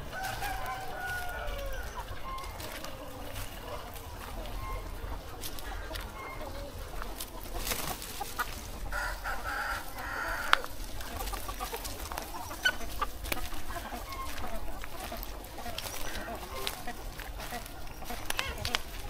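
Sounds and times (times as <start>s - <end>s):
chickens clucking: 0.0s - 19.0s.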